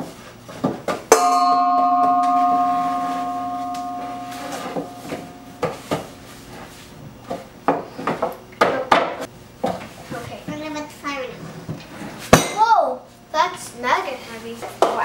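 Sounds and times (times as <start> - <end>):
metal mixing bowl ringing: 1.1 - 6.6.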